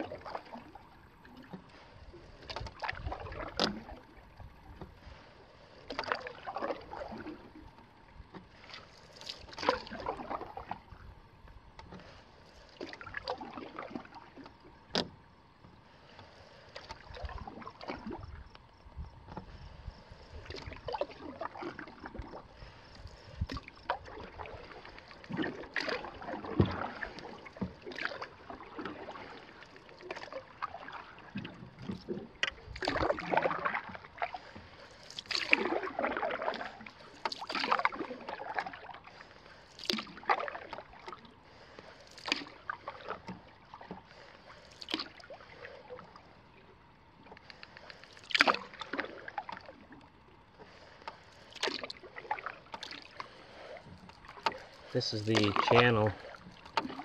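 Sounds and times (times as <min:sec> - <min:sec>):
canoe paddle splashing water: 0:00.0 - 0:57.0.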